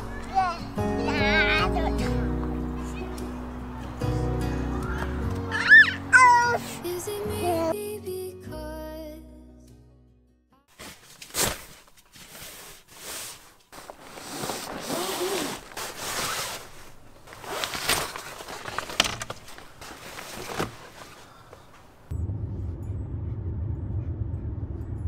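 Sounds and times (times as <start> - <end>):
bags rustling and zipping: 10.7 - 22.1
car interior rumble: 14.8 - 25.0.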